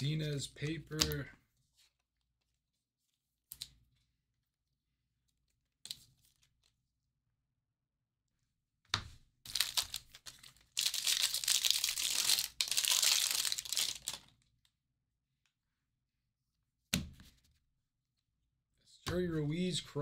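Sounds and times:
foil wrapper crinkling and tearing: 9.5 - 14.4.

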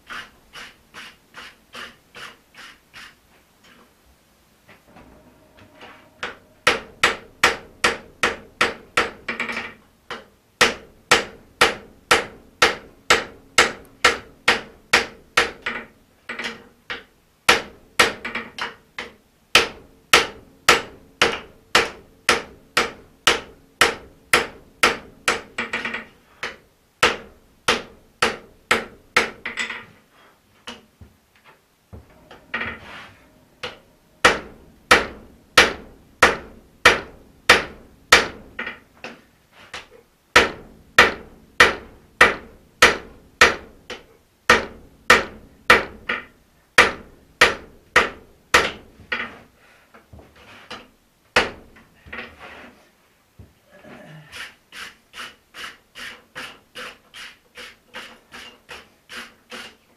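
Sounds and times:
hammer striking steel on anvil: 4.9 - 9.6, 33.6 - 38.8.

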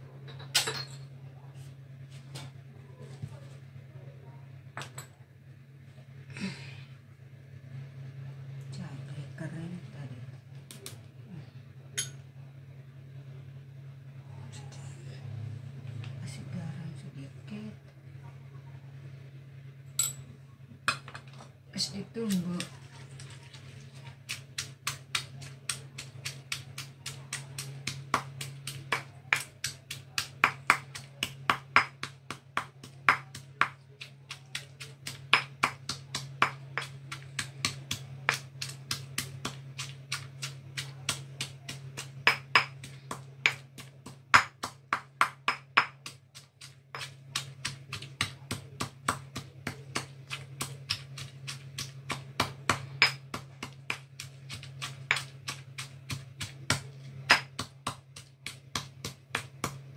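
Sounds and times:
steady low hum: 0.0 - 59.9
stone pestle pounding in mortar: 24.2 - 59.9.

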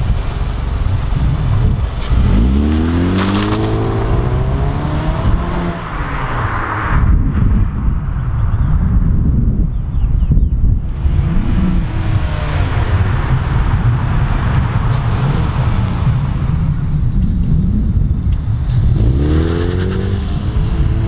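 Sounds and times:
wind rumble on microphone: 0.0 - 21.0
car accelerating past: 2.0 - 7.2.

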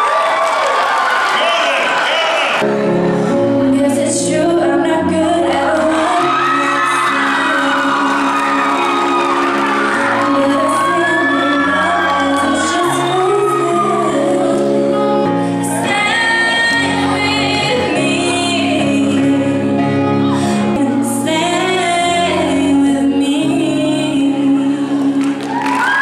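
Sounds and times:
girl singing into microphone: 3.3 - 26.0.

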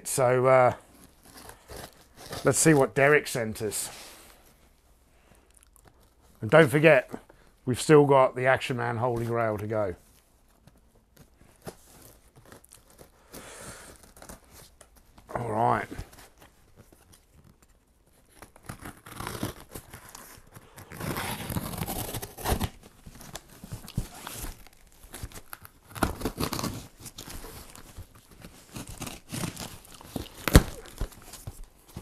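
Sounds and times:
plastic and cardboard crinkling: 0.1 - 4.7, 8.5 - 32.0
packing tape tearing off: 1.0 - 2.9, 11.2 - 32.0
knife slitting packing tape: 18.3 - 31.5.

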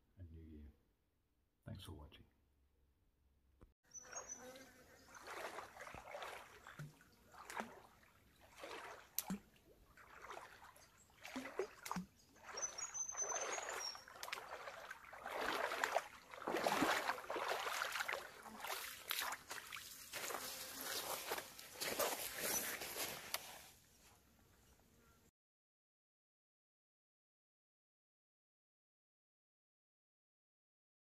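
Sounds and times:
footsteps splashing in water: 5.0 - 23.6.

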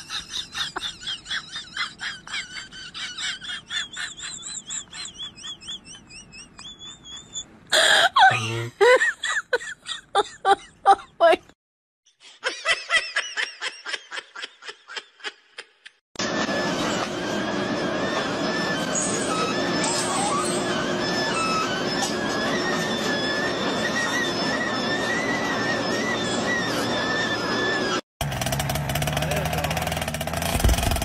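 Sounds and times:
person laughing hard: 0.0 - 11.5, 12.3 - 16.0.

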